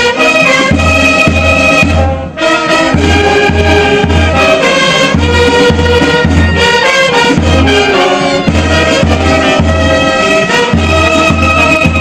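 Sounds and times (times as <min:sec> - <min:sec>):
horns playing sustained notes: 0:00.0 - 0:12.0
low drum beat: 0:02.9 - 0:12.0.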